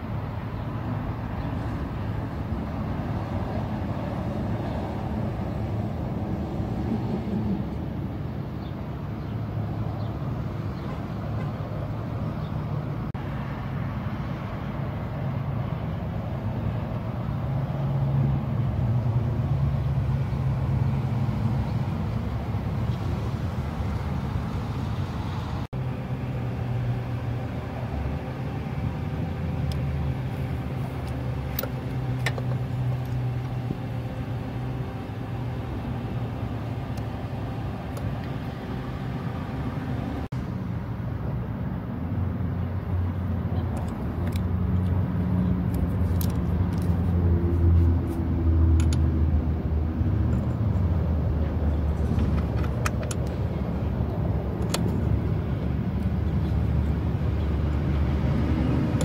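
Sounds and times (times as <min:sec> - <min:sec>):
vehicle engine idling: 0:14.6 - 0:41.3, 0:42.8 - 0:59.0.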